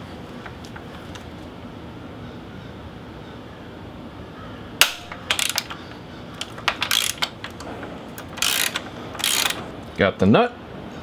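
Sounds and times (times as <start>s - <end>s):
hand ratchet clicking: 4.8s - 9.7s.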